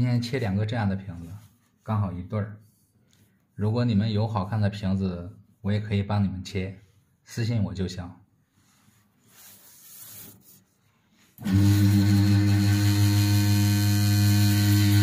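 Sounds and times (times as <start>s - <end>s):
drill press motor humming: 11.4s - 15.0s.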